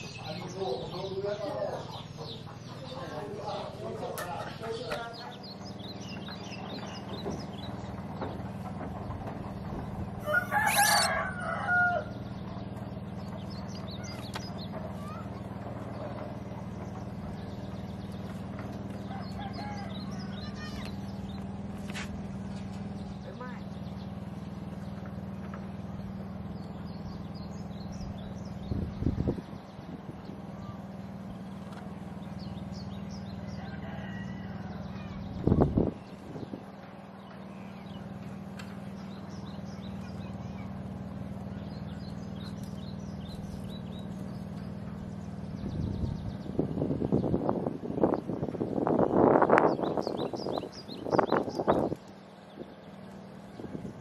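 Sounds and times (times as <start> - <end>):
low motor drone: 0.0 - 54.0
small birds chirping: 0.0 - 54.0
high chirping bird calls: 10.2 - 12.3, 19.0 - 21.8, 34.7 - 53.9.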